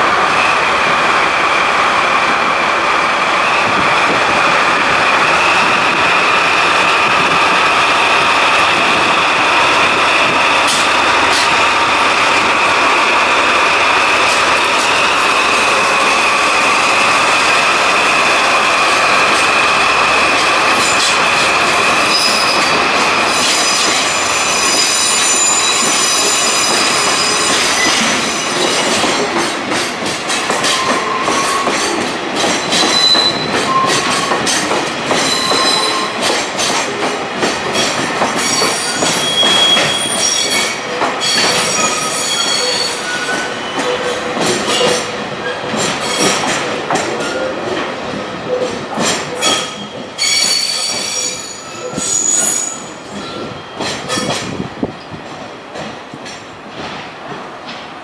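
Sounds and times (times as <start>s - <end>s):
freight train rolling past: 0.0s - 58.0s
wheels squealing on rails: 13.8s - 29.4s, 30.3s - 47.6s, 48.4s - 55.2s.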